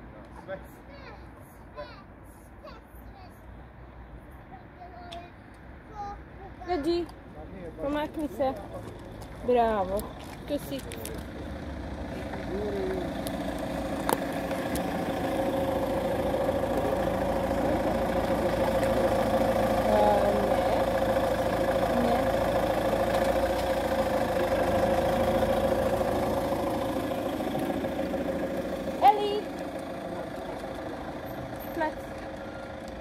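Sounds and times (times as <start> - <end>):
car engine idling: 6.8 - 33.0.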